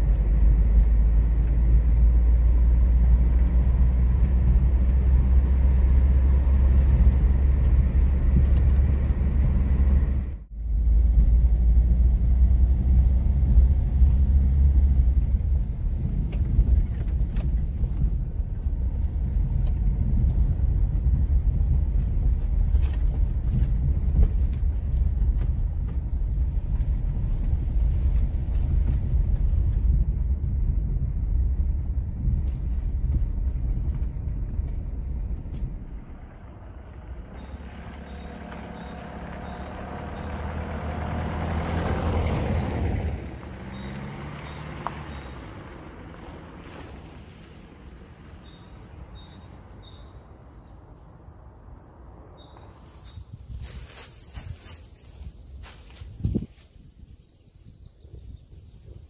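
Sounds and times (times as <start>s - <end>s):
car engine and tyre rumble: 0.0s - 59.0s
suspension clicks and knocks: 15.0s - 38.7s.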